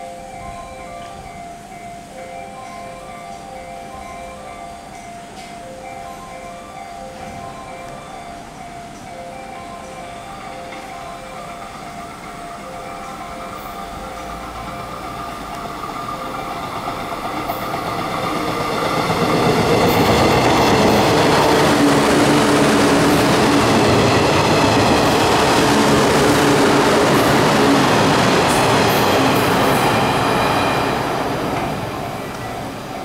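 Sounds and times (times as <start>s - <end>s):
train wheels rumbling on rails: 8.5s - 33.0s.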